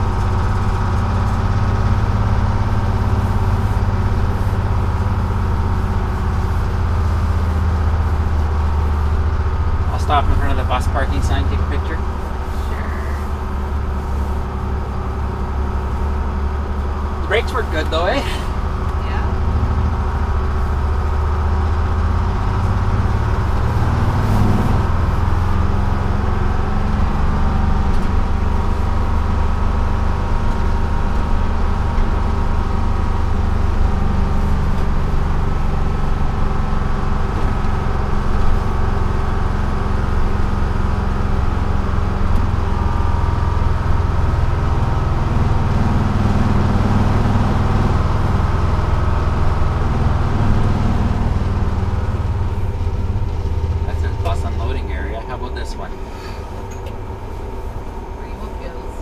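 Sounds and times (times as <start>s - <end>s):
diesel engine drone: 0.0s - 59.0s
road and body noise: 0.0s - 59.0s.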